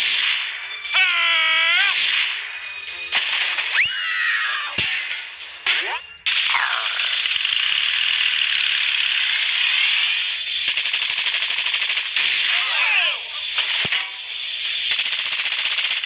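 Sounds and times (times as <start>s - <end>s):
machine-gun fire: 4.8s - 12.6s, 14.8s - 16.0s.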